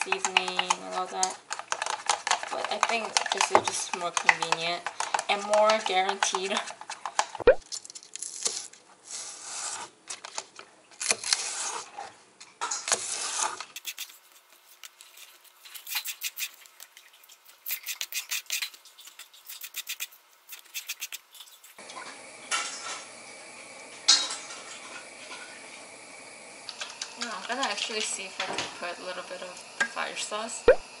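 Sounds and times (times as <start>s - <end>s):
kitchen scissors snipping: 13.8s - 21.8s.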